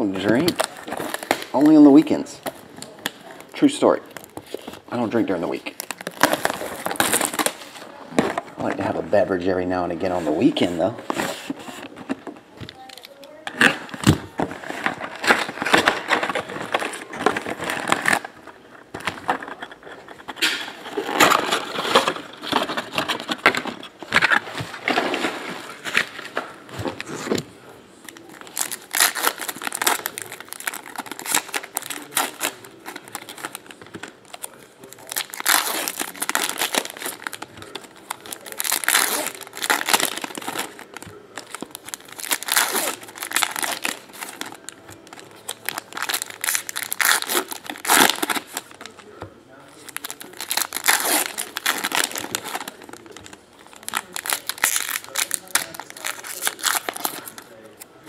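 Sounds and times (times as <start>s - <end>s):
wrappers crinkling: 0.1s - 7.8s, 12.7s - 27.3s, 27.9s - 58.0s
foil card packs tearing: 4.2s - 7.7s, 28.1s - 49.0s, 49.7s - 57.6s.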